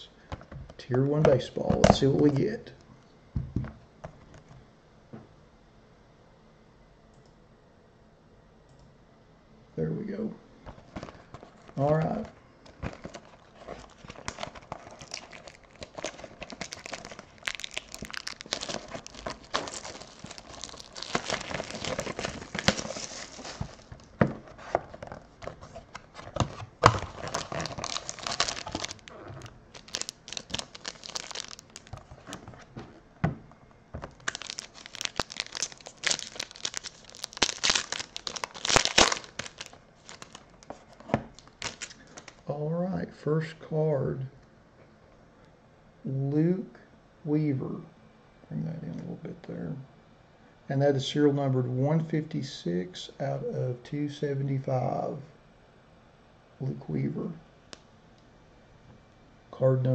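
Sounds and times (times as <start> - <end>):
foil pack crinkling and tearing: 12.8 - 32.7, 34.0 - 42.4.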